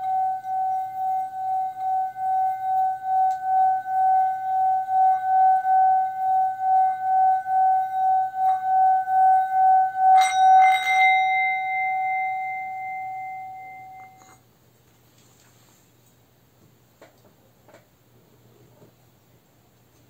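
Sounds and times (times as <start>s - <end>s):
singing bowl ringing: 0.0s - 14.4s
singing bowl struck: 0.0s - 14.4s.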